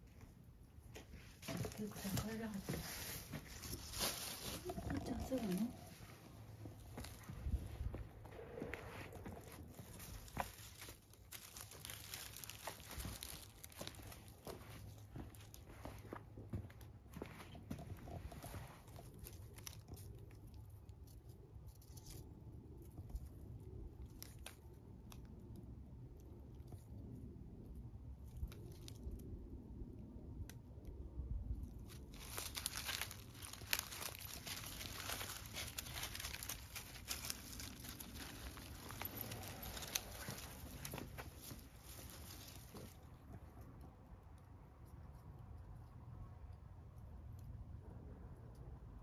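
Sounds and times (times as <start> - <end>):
dry leaves crunching underfoot: 1.0 - 16.2, 17.2 - 20.5, 31.7 - 43.2.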